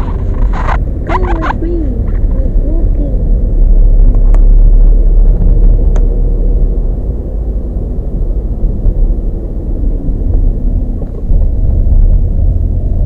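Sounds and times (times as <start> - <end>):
road and engine rumble in car: 0.0 - 13.0.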